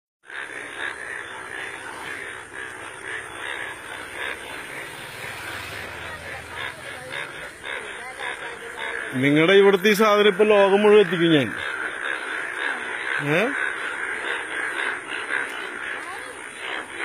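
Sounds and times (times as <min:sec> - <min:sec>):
chorus of frogs croaking: 0:00.2 - 0:17.0.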